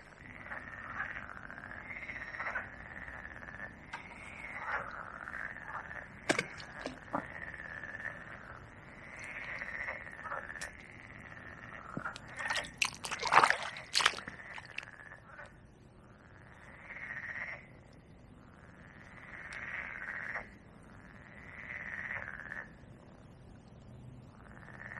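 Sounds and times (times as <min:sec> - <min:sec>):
frogs calling in chorus: 0:00.0 - 0:15.5, 0:18.5 - 0:22.7
water splashing: 0:06.3 - 0:07.1, 0:12.0 - 0:14.9.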